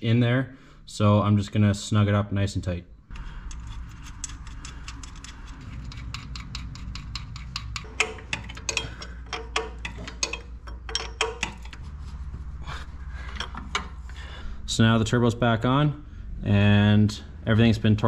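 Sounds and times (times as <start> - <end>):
low hum: 2.8 - 18.0
ratchet wrench clicking: 3.1 - 11.8
metal clinks: 3.2 - 11.8.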